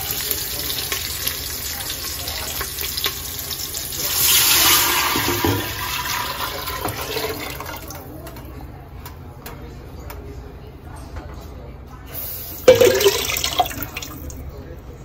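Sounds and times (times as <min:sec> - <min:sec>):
liquid pouring into hot pan: 0:00.2 - 0:08.0, 0:12.3 - 0:14.4.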